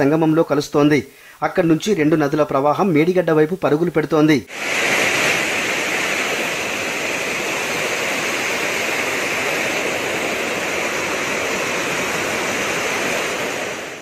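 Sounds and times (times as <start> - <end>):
floodwater rushing down spillway: 4.5 - 14.0.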